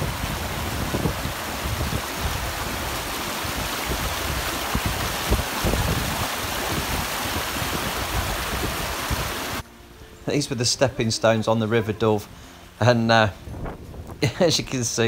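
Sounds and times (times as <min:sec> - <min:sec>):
river rushing and splashing: 0:00.0 - 0:09.8.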